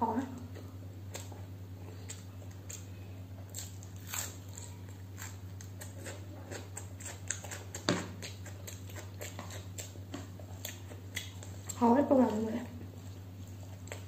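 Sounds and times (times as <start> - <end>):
steady low hum: 0.0 - 14.0
crunching bites and chewing: 0.6 - 11.8.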